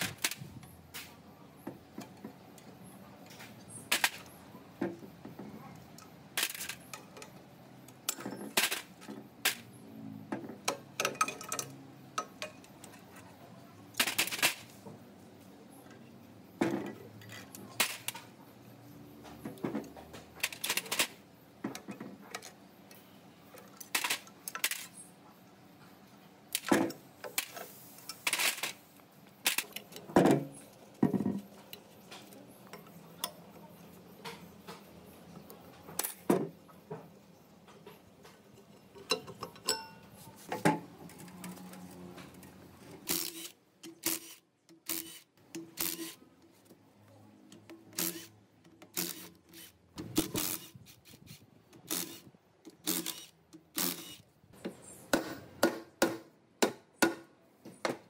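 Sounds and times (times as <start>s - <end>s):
metal tools clinking and knocking: 8.0s - 9.2s, 10.6s - 13.4s, 37.7s - 41.6s.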